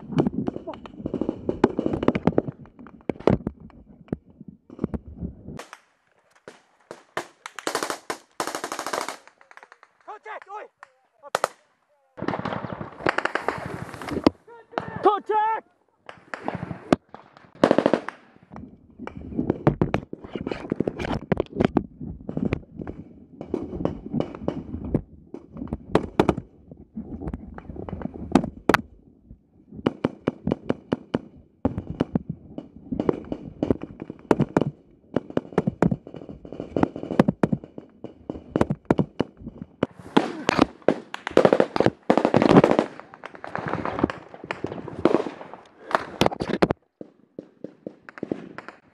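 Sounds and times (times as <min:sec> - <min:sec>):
gunshots: 0:05.6 - 0:10.3, 0:11.3 - 0:15.2, 0:16.1 - 0:18.6, 0:29.8 - 0:46.6, 0:47.4 - 0:48.9
rustling of movement: 0:11.1 - 0:14.8.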